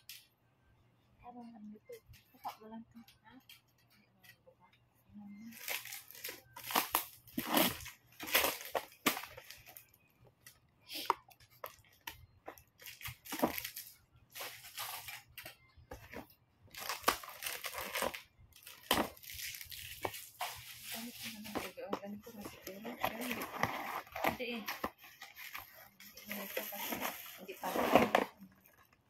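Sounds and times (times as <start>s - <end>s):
plastic packaging crinkling and tearing: 5.5s - 10.0s, 11.5s - 15.4s, 16.0s - 29.0s.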